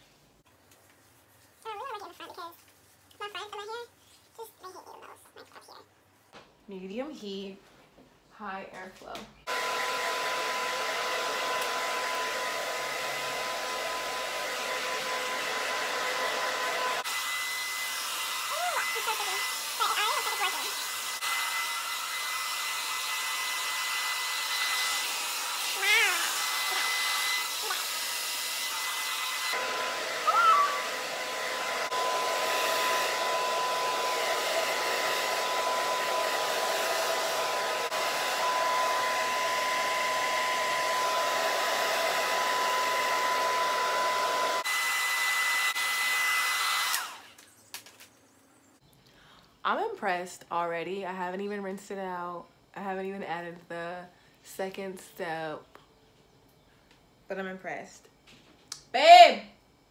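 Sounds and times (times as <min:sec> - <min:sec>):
hair dryer blowing: 0:09.4 - 0:47.4.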